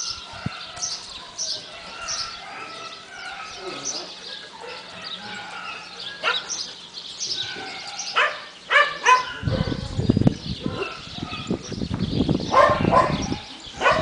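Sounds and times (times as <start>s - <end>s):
small birds chirping: 0.0s - 14.0s
dog barking: 4.6s - 6.6s, 8.0s - 9.9s, 12.5s - 14.0s.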